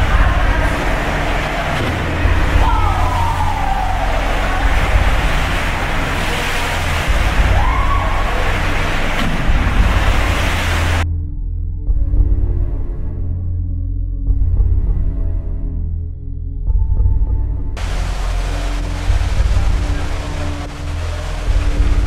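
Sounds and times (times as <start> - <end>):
low rumble and rushing storm noise: 0.0 - 11.1, 17.8 - 22.0.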